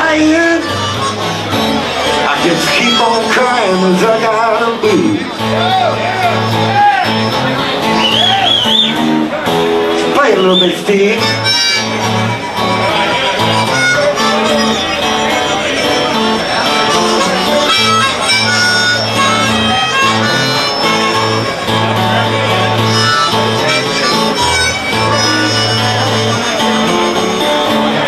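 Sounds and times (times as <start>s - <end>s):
blues harmonica playing: 0.0s - 28.0s
guitar accompaniment: 0.0s - 28.0s.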